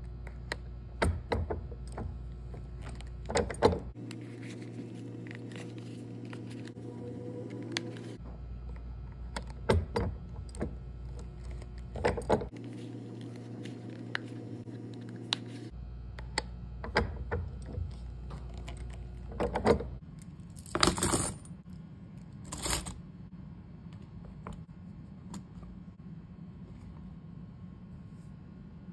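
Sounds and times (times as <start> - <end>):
low steady hum: 0.0 - 28.9
keys dropped: 20.2 - 21.6, 22.4 - 23.0
coins rattling into a tray: 20.6 - 21.5, 22.5 - 23.0.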